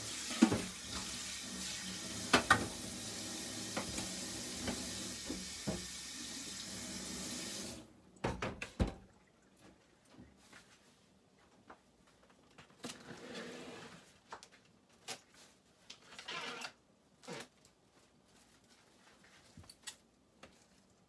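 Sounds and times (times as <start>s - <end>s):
light kitchen clicks and knocks: 2.3s - 2.7s, 8.2s - 9.1s
plastic wrap rustling: 14.0s - 21.0s.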